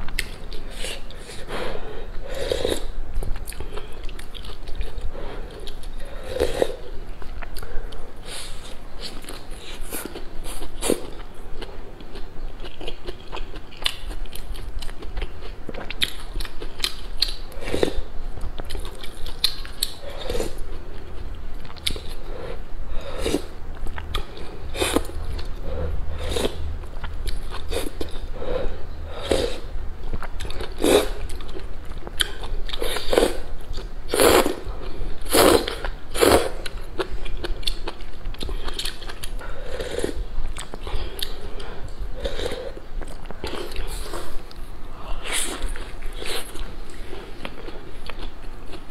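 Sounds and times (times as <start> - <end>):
person slurping noodles: 22.4 - 23.5, 25.7 - 26.7, 35.2 - 36.6.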